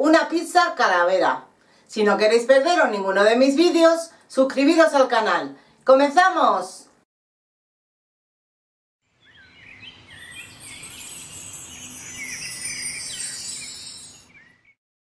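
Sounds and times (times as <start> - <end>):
birds chirping: 9.1 - 14.8
tinkling chime-like shimmer: 10.2 - 14.5.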